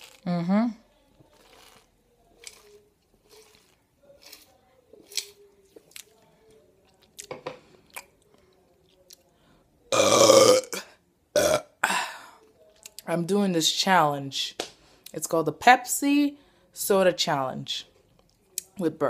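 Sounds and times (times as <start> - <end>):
woman burping: 9.9 - 12.3.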